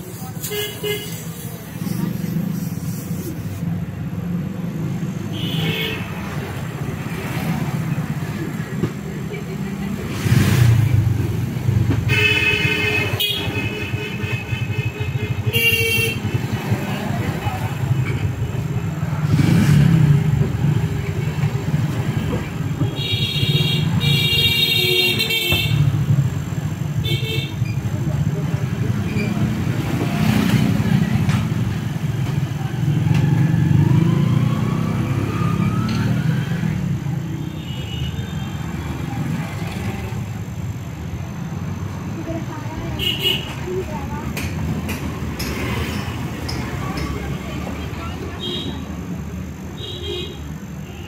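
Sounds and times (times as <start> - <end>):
refrigerator compressor hum: 10.7 - 30.0, 36.3 - 51.0.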